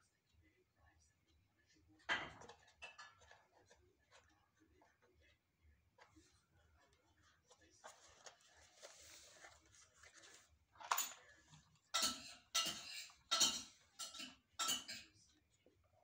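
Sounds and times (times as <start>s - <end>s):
soft rustle: 6.0s - 10.7s.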